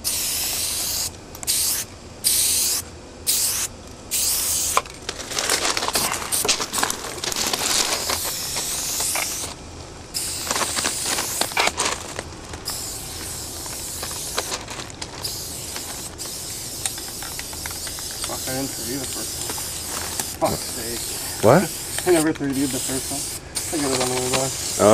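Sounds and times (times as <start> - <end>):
spray paint can hissing: 0.0 - 4.9, 5.9 - 6.8, 7.9 - 11.8, 12.6 - 14.6, 15.2 - 24.9
spray can clicks: 16.8 - 18.4.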